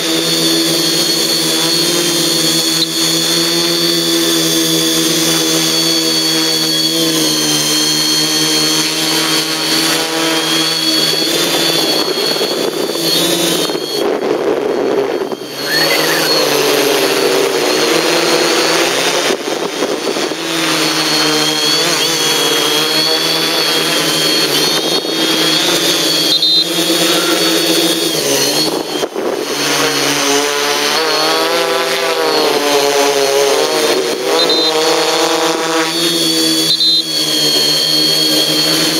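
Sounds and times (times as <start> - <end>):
quadcopter motors whining: 0.0 - 38.9.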